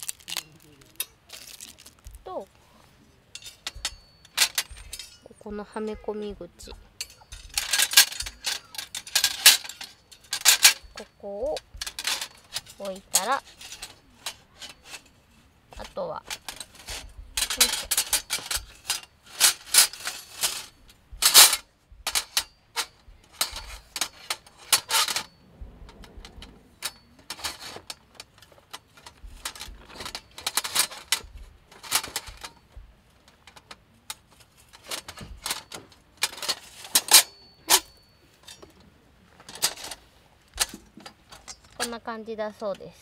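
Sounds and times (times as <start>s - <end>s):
metal parts clattering and clinking: 0.0s - 2.5s, 3.3s - 42.9s
metal piece ringing: 3.3s - 28.1s, 35.2s - 38.8s.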